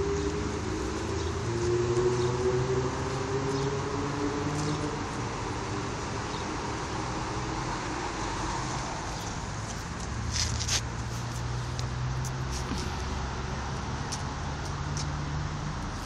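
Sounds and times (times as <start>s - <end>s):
motor vehicle passing by: 0.0s - 16.0s.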